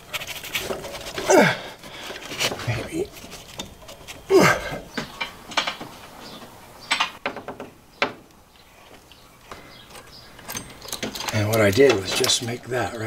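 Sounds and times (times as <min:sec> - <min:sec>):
clicks and rattles of hand work: 0:04.9 - 0:06.2, 0:06.9 - 0:13.0.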